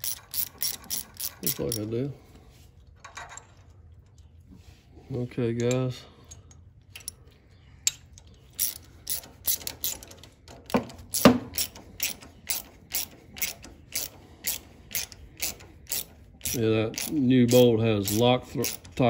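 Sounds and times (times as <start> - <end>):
socket ratchet clicking: 0.0 - 1.9, 8.6 - 10.4, 11.0 - 19.0.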